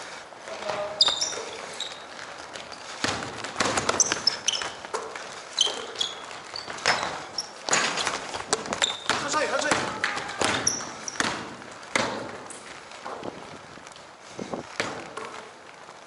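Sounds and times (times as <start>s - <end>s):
sneakers squeaking: 0.0s - 13.5s
basketball bouncing on wood floor: 2.7s - 13.3s, 14.8s - 15.4s.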